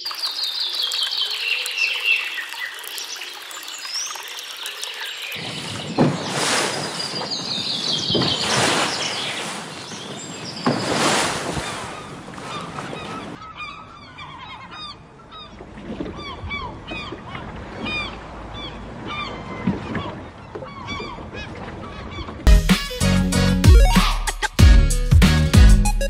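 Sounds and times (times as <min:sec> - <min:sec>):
water sloshing and splashing: 0:00.0 - 0:13.6, 0:14.8 - 0:22.5.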